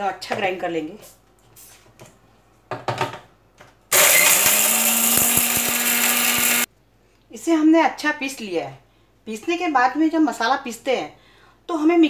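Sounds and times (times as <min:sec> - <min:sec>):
mixer grinder motor whirring: 0:03.9 - 0:06.7.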